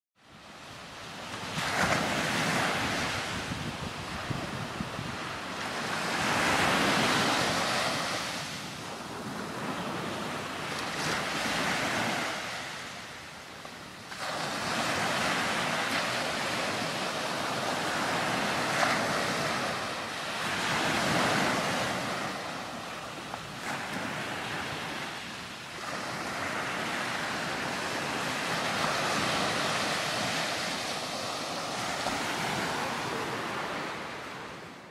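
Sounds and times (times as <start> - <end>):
wind on microphone: 0.4 - 13.1, 13.7 - 34.9
ocean surf breaking: 1.1 - 34.9.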